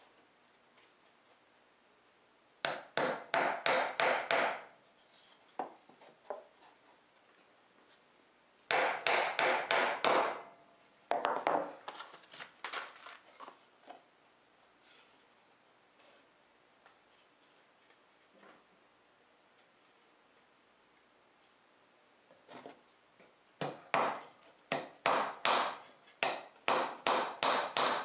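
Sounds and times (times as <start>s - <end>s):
hammer driving nails into wood: 2.6s - 4.7s, 8.7s - 10.4s, 23.6s - 28.0s.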